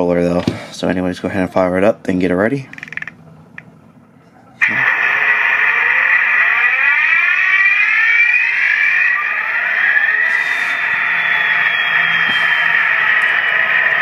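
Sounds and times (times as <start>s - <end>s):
tinny diesel engine sound effect: 4.6s - 14.0s.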